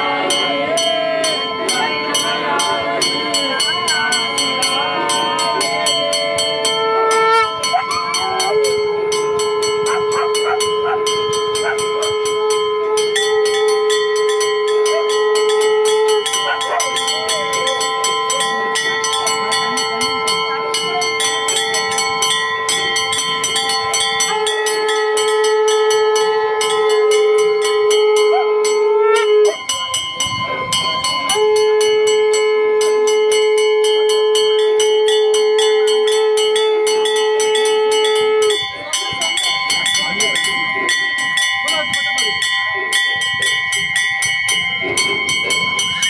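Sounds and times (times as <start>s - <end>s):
temple bells ringing rapidly: 0.0s - 46.0s
steady horn-like tone: 2.2s - 17.8s, 18.5s - 29.6s, 31.3s - 38.7s.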